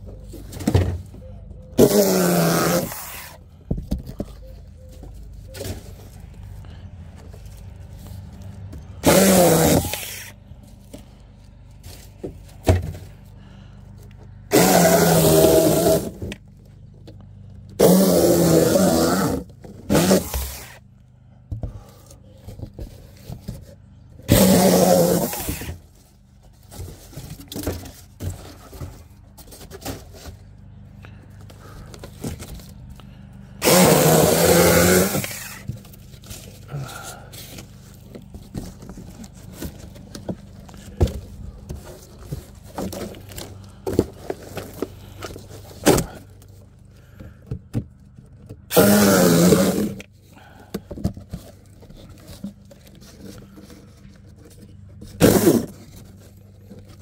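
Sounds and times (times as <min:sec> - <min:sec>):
electric chainsaw bursts: 0:01.8 - 0:03.4, 0:09.0 - 0:10.3, 0:14.5 - 0:16.2, 0:17.8 - 0:20.8, 0:24.3 - 0:25.7, 0:33.6 - 0:35.7, 0:48.7 - 0:50.0.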